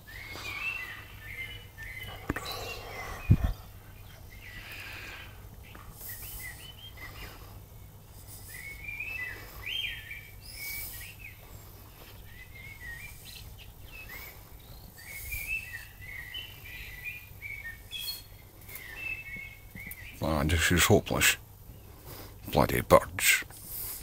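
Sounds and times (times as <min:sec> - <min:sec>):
songbirds warbling: 0:00.0 - 0:24.0
high thin bird chirps: 0:05.7 - 0:07.4, 0:08.2 - 0:11.4, 0:12.2 - 0:20.4.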